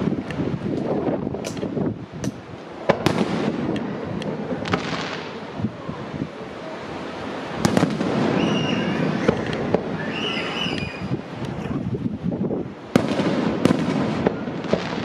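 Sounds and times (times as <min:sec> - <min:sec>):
firework shells bursting: 0:00.2 - 0:05.4, 0:07.6 - 0:11.6, 0:12.9 - 0:15.0.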